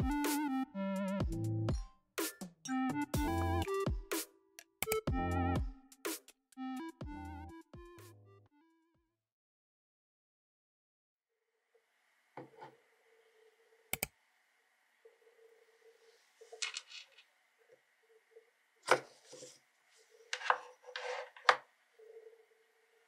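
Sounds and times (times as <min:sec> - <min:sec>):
faint steady hum: 0:11.4 - 0:23.0.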